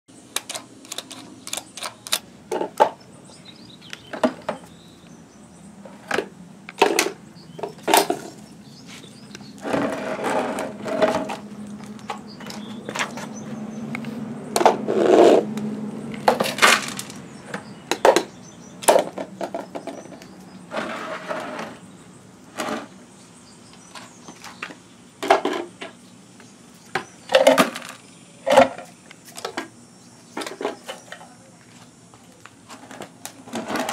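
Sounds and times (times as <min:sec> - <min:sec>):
plastic claw clicking: 0:00.4 - 0:02.2
plastic bins knocking and scraping: 0:02.5 - 0:03.0, 0:04.0 - 0:04.8, 0:05.8 - 0:08.4, 0:09.5 - 0:13.3, 0:16.2 - 0:21.8, 0:24.0 - 0:26.0, 0:26.9 - 0:29.7, 0:30.4 - 0:31.3, 0:32.7 - 0:33.9.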